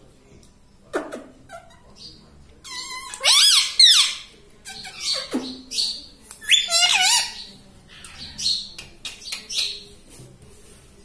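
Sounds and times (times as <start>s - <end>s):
parakeet squawk: 2.7s - 8.4s
parakeet whistling calls: 4.9s - 7.5s.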